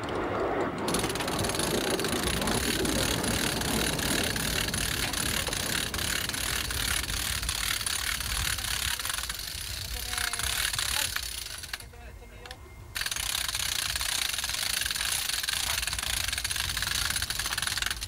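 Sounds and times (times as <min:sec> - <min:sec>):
engine running: 0:00.0 - 0:11.2.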